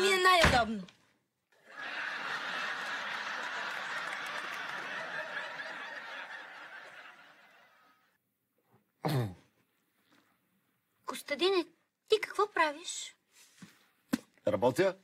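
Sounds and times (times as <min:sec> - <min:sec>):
audience laughter: 0:01.6 - 0:08.2.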